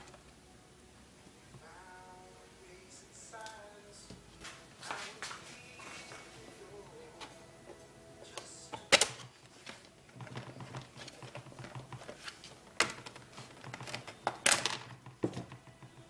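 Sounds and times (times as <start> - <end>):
handling noise: 4.0 - 16.0
plastic clips clicking and snapping: 8.4 - 15.9.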